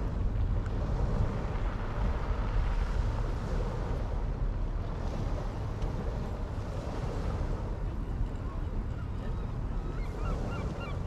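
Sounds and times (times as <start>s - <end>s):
sea surf washing ashore: 0.0s - 8.3s
wind rumbling on microphone: 0.0s - 11.0s.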